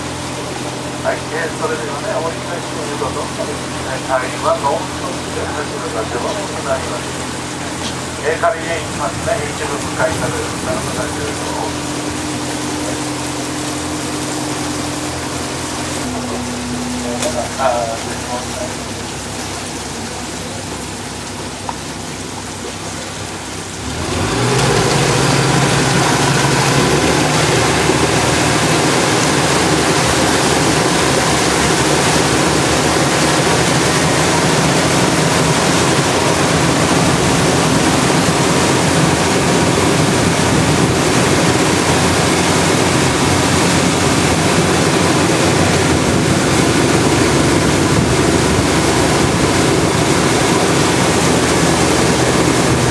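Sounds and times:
boat engine running: 0:00.0 - 0:52.9
water rushing past hull: 0:00.0 - 0:52.9.

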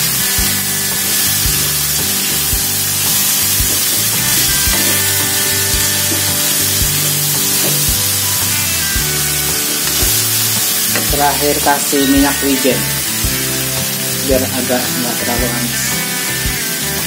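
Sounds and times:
background music with beat: 0:00.0 - 0:17.0
food sizzling in a wok: 0:00.0 - 0:17.0
metal spatula scraping: 0:00.9 - 0:11.6.

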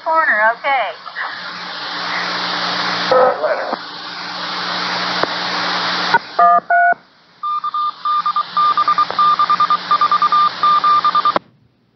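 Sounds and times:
radio static hiss: 0:00.0 - 0:11.4
short dial tones: 0:06.1 - 0:11.4
short identical beeps: 0:06.4 - 0:11.4.

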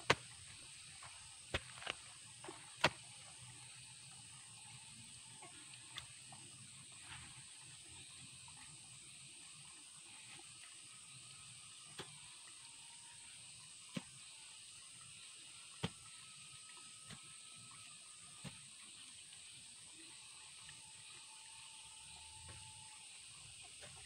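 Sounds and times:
hands digging in soil: 0:00.0 - 0:03.0.

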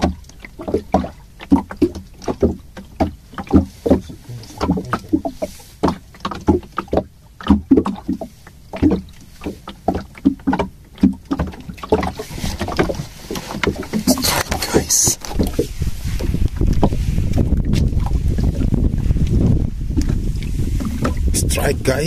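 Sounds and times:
water slapping against boat hull: 0:00.0 - 0:22.0.

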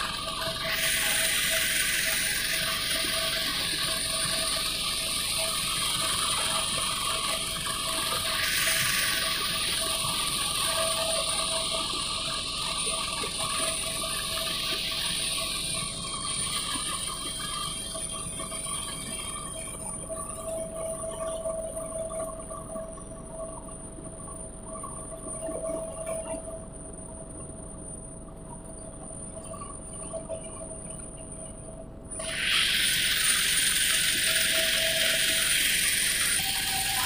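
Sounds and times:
helicopter engine and rotor drone: 0:34.3 - 0:37.0.

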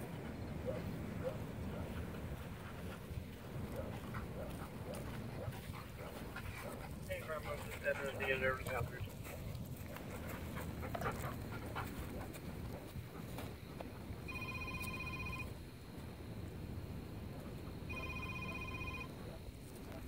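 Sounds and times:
phone ringing: 0:14.3 - 0:15.6, 0:17.9 - 0:19.2.

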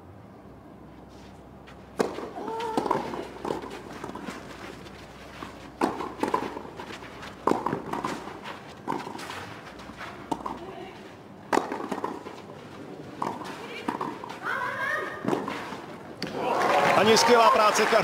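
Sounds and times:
tennis ball struck by rackets: 0:01.9 - 0:04.7, 0:05.7 - 0:09.5, 0:10.2 - 0:10.6, 0:11.5 - 0:12.5, 0:13.2 - 0:14.4, 0:15.2 - 0:16.4.

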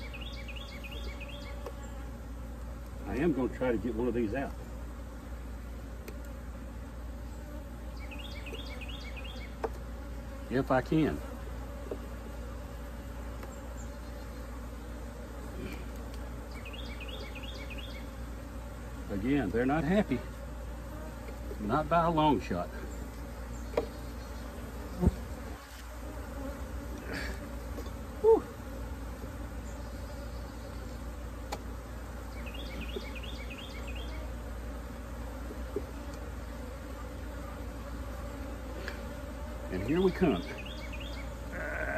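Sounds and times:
honey bees buzzing: 0:00.0 - 0:41.9.

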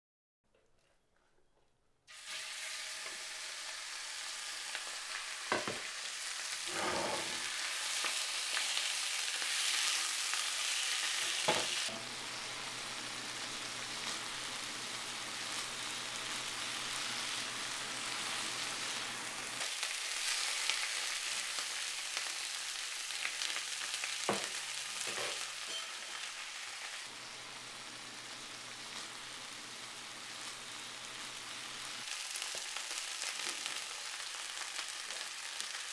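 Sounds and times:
meat sizzling in pan: 0:02.1 - 0:35.9
wooden spatula scraping pan: 0:06.6 - 0:07.6.

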